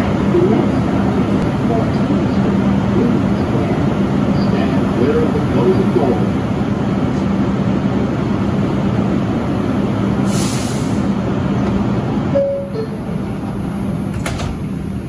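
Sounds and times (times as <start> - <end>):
idling subway car hum: 0.0 - 15.0
air hiss: 10.2 - 11.1.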